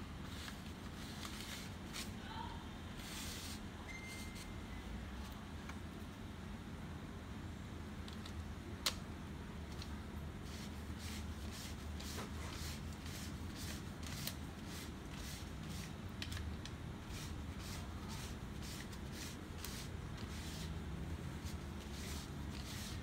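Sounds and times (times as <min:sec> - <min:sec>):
steady low hum: 0:00.0 - 0:23.0
hands rubbing plastic parts: 0:00.2 - 0:02.2, 0:09.7 - 0:23.0.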